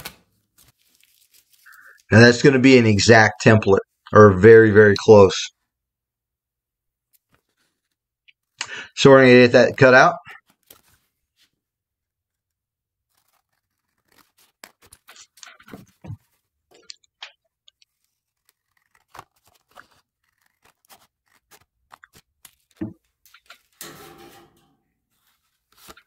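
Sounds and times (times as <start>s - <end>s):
paper rustling: 0.0s - 2.2s, 7.1s - 8.0s, 10.3s - 11.6s, 12.3s - 23.8s, 25.1s - 26.0s
scissors snipping paper: 13.0s - 23.8s.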